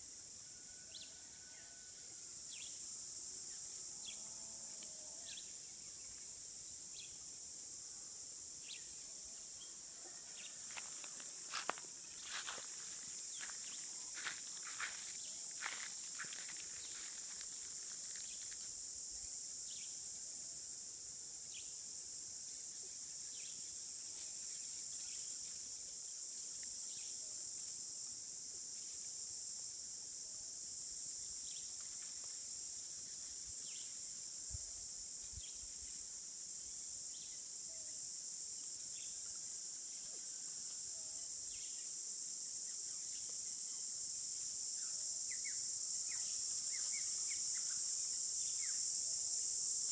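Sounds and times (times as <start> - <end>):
high-pitched insect drone: 0.0 - 49.9.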